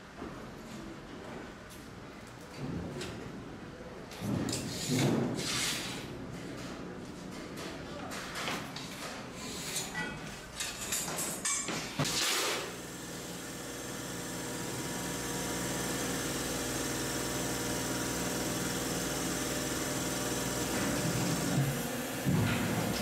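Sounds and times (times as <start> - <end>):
shear motor humming: 12.7 - 23.0.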